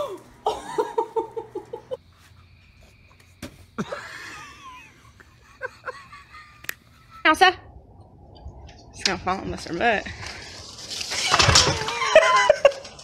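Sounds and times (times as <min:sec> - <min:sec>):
high-pitched laughter: 0:11.8 - 0:13.0.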